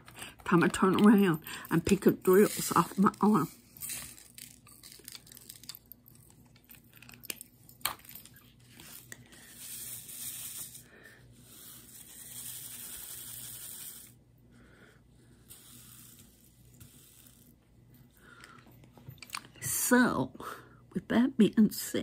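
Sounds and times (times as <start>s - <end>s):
plastic film rustling and crinkling: 1.9s - 10.8s.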